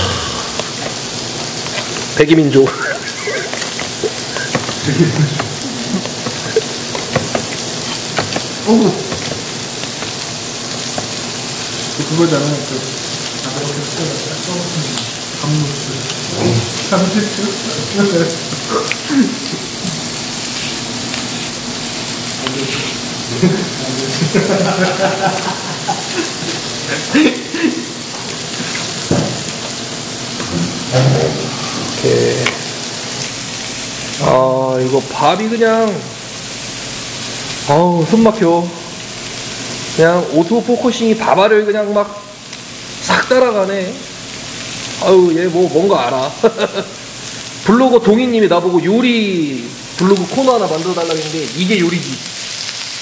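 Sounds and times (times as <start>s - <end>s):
man grunting: 0.0s - 0.8s, 2.7s - 3.6s
meat sizzling on a grill: 0.0s - 53.0s
steady hiss: 0.0s - 53.0s.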